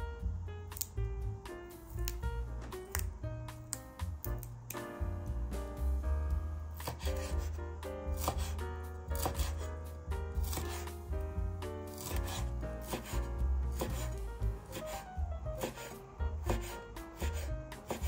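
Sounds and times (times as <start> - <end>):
background music: 0.0 - 18.0
knife chopping on wooden board: 6.8 - 11.2, 11.8 - 18.0.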